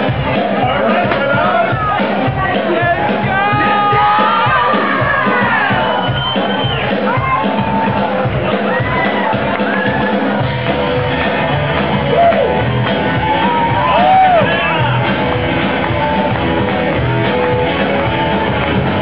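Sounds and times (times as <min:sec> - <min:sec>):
live band playing: 0:00.0 - 0:19.0
singer shouting and singing: 0:00.3 - 0:06.0.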